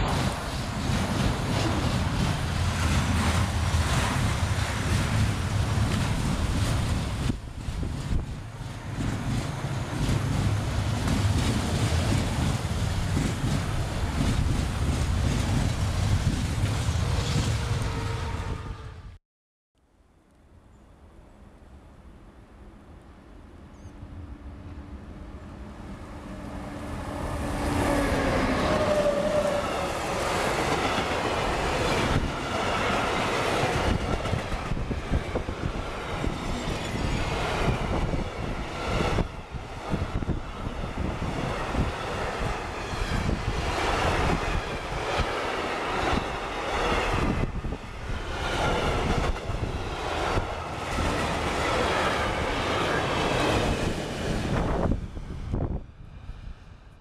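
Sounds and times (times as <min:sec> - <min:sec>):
train wagons rumbling: 0:00.0 - 0:18.6, 0:25.5 - 0:55.7
locomotive hum: 0:21.7 - 0:56.5.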